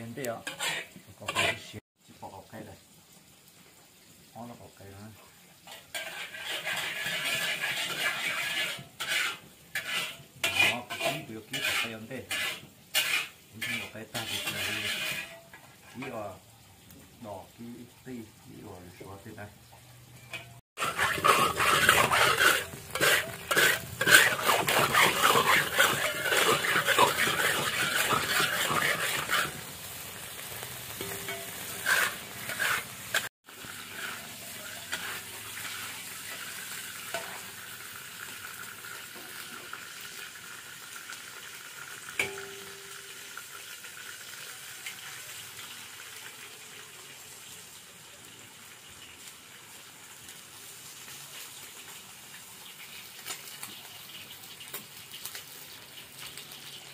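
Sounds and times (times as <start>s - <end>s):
metal spatula scraping wok: 0.0s - 1.8s, 5.6s - 16.3s, 20.2s - 37.6s
oil sizzling in pan: 0.0s - 56.9s.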